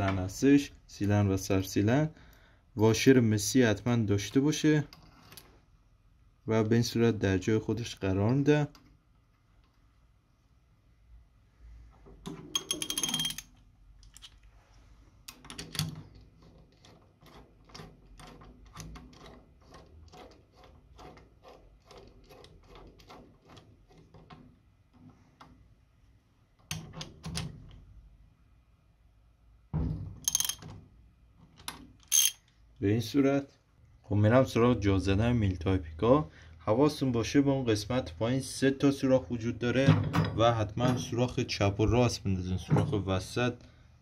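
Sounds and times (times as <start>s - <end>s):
metal tool clanks: 12.5s - 13.5s, 30.2s - 30.6s, 32.1s - 32.4s
socket ratchet clicking: 30.3s - 30.6s, 31.7s - 32.5s.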